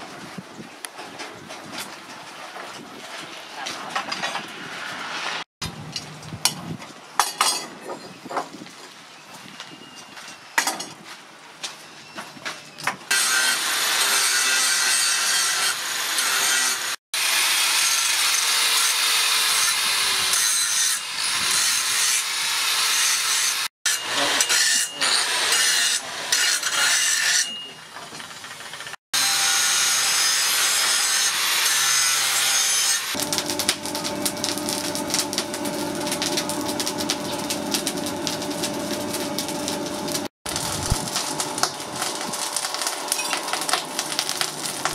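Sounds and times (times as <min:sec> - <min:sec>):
angle grinder grinding steel: 0:13.1 - 0:27.8, 0:28.8 - 0:44.9.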